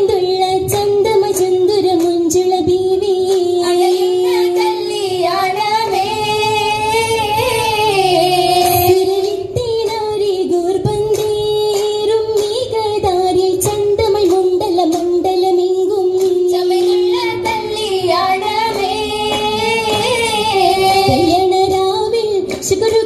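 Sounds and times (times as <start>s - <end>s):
girls singing together: 0.7s - 12.4s, 15.6s - 23.0s
sharp hand claps: 3.2s - 5.0s, 10.9s - 17.6s, 18.6s - 23.0s.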